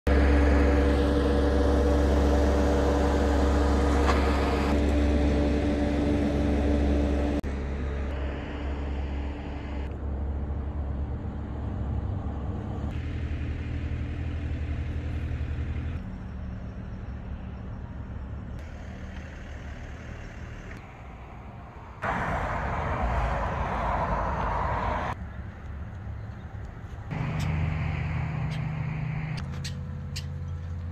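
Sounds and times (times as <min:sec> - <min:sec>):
engine rumble: 0:00.1 - 0:30.9
rushing noise: 0:27.1 - 0:29.4.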